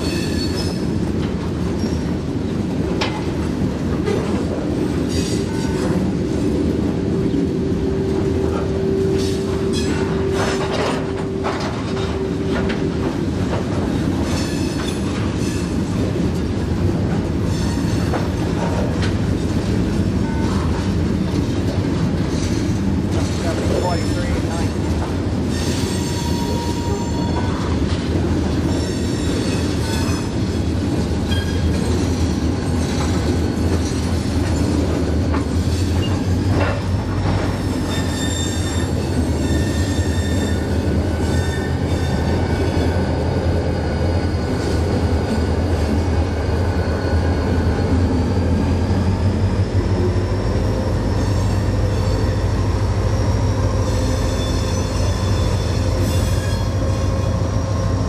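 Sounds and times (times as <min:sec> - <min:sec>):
train wheel squeals: 0:00.0 - 0:01.0, 0:01.7 - 0:02.2, 0:05.0 - 0:06.1, 0:08.4 - 0:12.8, 0:14.2 - 0:15.9, 0:17.4 - 0:20.9, 0:22.3 - 0:24.7, 0:25.4 - 0:27.8, 0:28.6 - 0:45.4, 0:46.4 - 0:58.0
diesel locomotive engine drone: 0:00.0 - 0:58.0.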